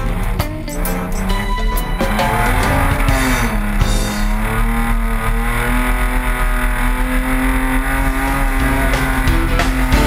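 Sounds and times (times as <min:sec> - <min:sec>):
pickup engine at high revs: 0:00.0 - 0:10.0.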